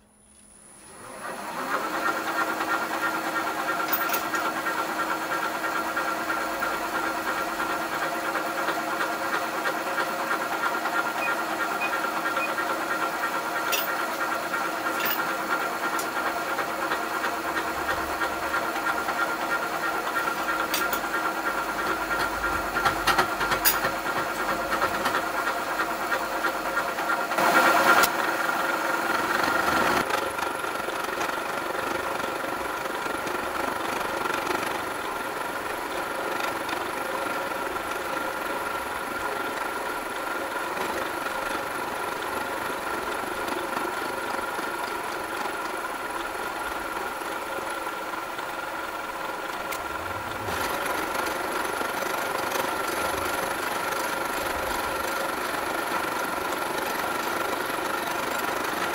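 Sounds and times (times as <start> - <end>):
milling machine cutting metal: 10.0 - 28.1.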